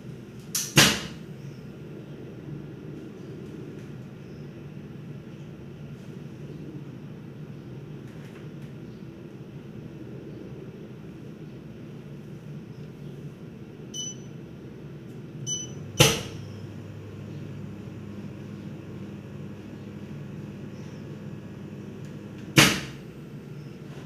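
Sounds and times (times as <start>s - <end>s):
machine hum: 6.5s - 24.0s
short electronic beeps: 13.9s - 14.4s, 15.5s - 16.6s.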